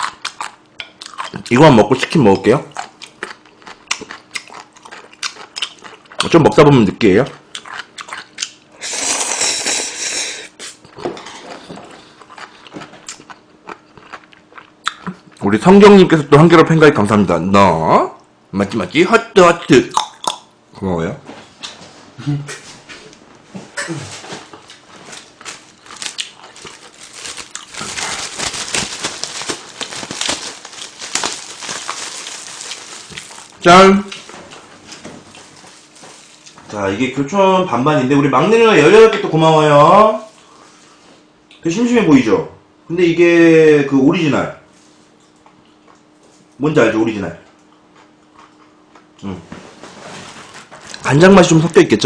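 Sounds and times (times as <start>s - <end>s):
wet chewing with smacking: 2.7s - 6.3s, 7.5s - 8.6s, 11.6s - 15.4s, 24.5s - 36.6s, 47.5s - 49.2s
noodle slurp: 8.8s - 10.8s
plastic gloves crinkling: 24.2s - 36.8s.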